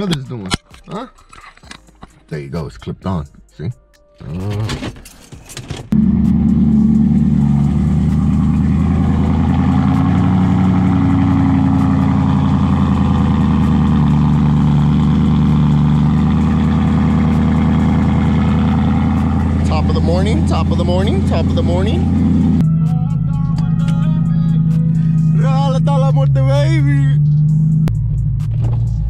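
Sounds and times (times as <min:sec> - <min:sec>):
car engine idling loudly: 0:06.0 - 0:22.6.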